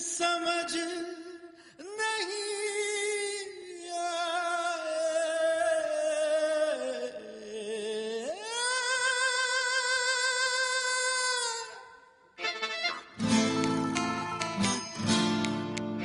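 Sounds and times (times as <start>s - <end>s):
woman singing with vibrato: 13.2s - 15.0s.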